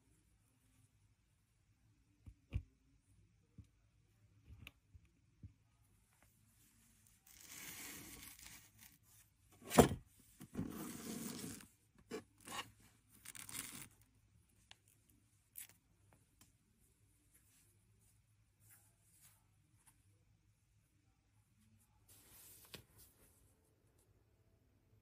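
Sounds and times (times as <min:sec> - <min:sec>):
objects scraping on wooden table: 0:10.5 - 0:11.6.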